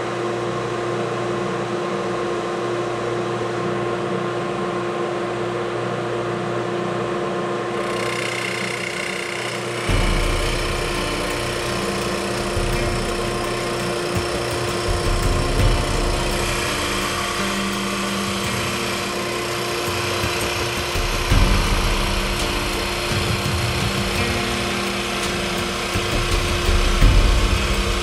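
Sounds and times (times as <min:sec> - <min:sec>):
lathe mechanical hum: 0:00.0 - 0:28.0
high hiss: 0:09.7 - 0:28.0
deep rumble: 0:14.8 - 0:19.4.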